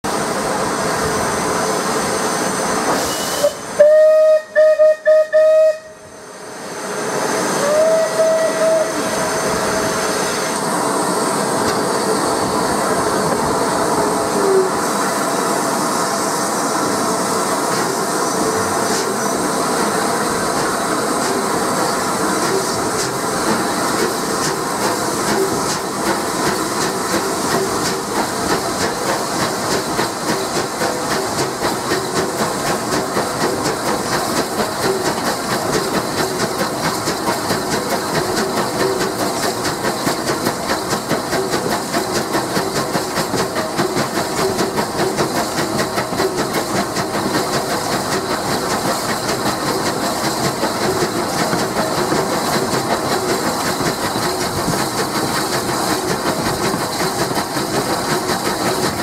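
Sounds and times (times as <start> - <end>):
steam locomotive running: 0.0 - 59.0
steam locomotive chuffing: 0.1 - 59.0
steam whistle: 3.0 - 6.3, 7.5 - 10.6.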